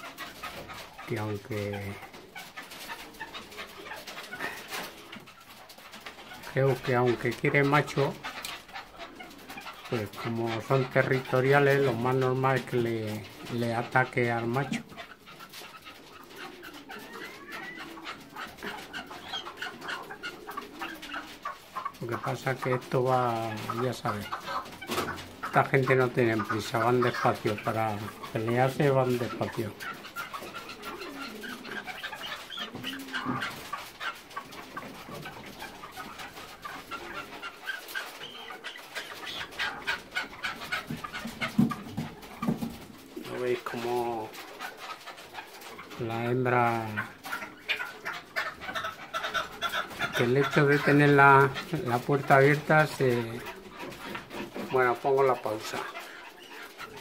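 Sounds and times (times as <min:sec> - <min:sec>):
partridges clucking: 0:00.0 - 0:43.8
soft low bird calls: 0:14.4 - 0:22.9, 0:29.0 - 0:43.6.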